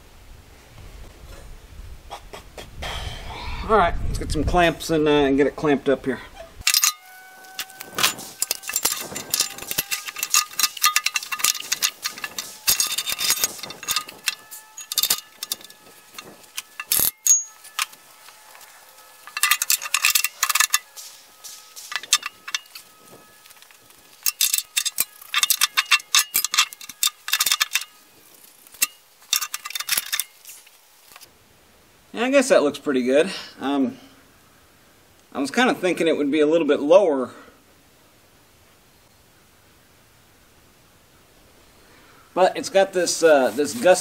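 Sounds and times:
steel parts clanking and scraping: 0:06.6 - 0:31.3, 0:42.8 - 0:44.0.

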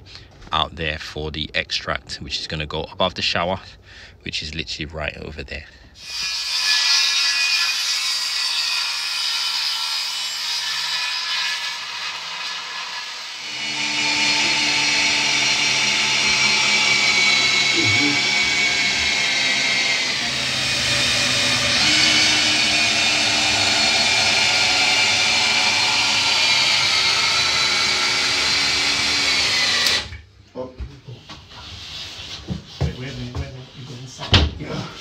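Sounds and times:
cordless drill whining: 0:13.4 - 0:30.2.

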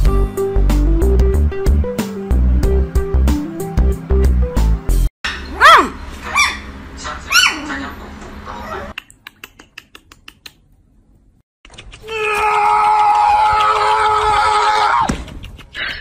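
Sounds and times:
puppy yipping: 0:05.3 - 0:06.7, 0:07.3 - 0:07.7.

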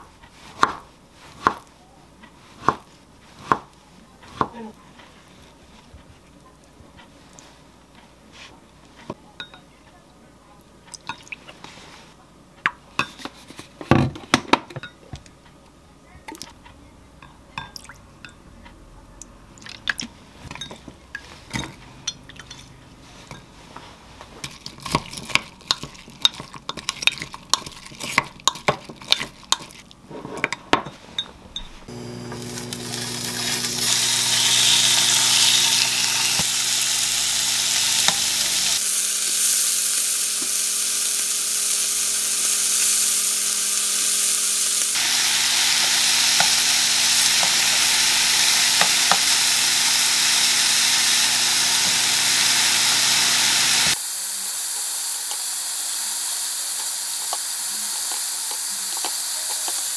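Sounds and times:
meat sizzling in a frying pan: 0:31.9 - 0:59.9.

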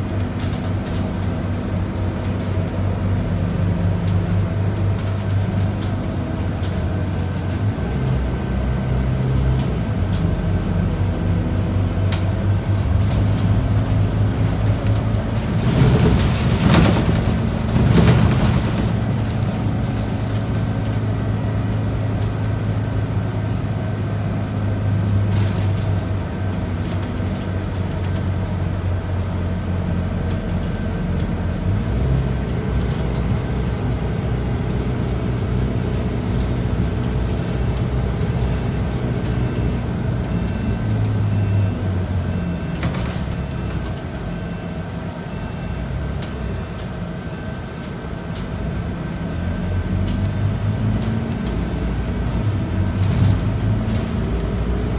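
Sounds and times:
bus diesel engine running: 0:00.0 - 0:54.9.

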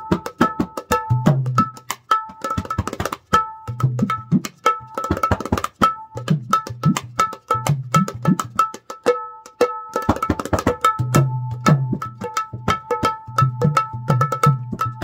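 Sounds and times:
hand drum fast rhythm: 0:00.0 - 0:15.0.

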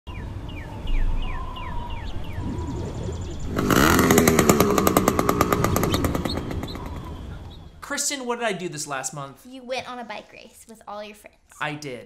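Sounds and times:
bird chirping: 0:00.1 - 0:07.8
small two-stroke engine passing: 0:02.2 - 0:07.8.

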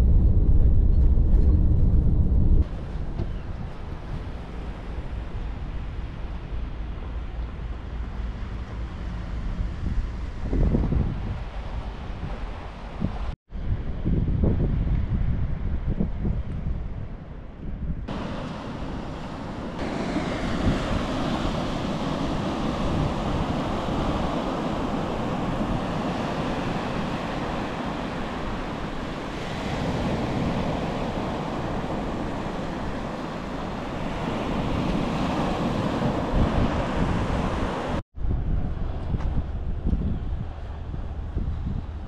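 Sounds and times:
wind buffeting microphone: 0:00.0 - 0:42.0
water rushing: 0:18.1 - 0:38.0.

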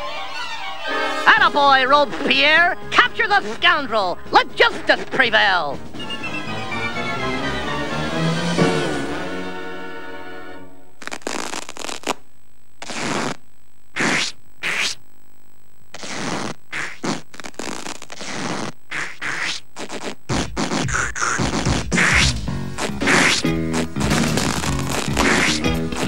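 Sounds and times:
cartoon scraping and swishing effects: 0:14.0 - 0:15.0, 0:16.0 - 0:26.0.

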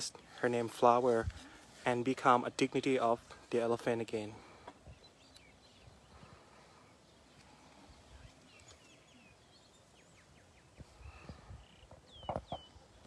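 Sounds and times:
faint bird chirps: 0:04.8 - 0:13.0.

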